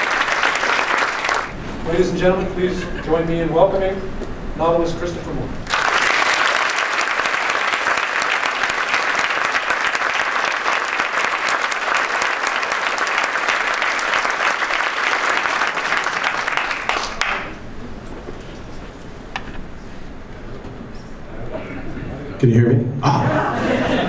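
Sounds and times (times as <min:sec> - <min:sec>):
audience applauding: 0:00.0 - 0:01.6, 0:05.6 - 0:17.6.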